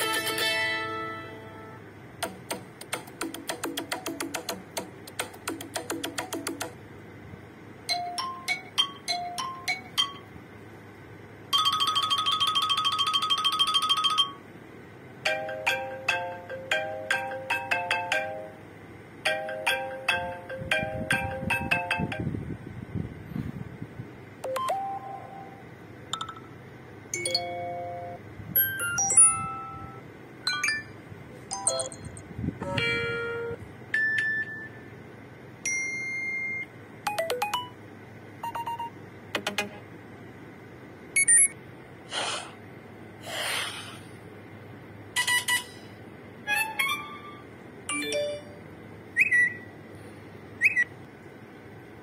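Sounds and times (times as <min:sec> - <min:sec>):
phone alert chimes and beeps: 0:27.2 - 0:31.0.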